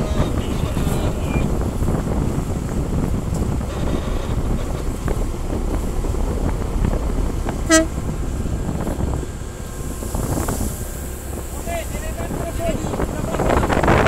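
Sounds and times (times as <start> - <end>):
boat engine rumble: 0.0 - 14.0
wind on microphone: 0.0 - 14.0
short horn toot: 7.5 - 8.1.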